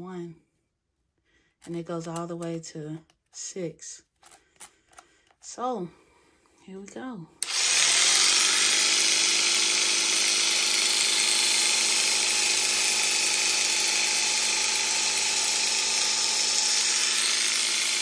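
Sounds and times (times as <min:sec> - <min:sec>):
electric shears trimming rug: 0:07.4 - 0:18.0.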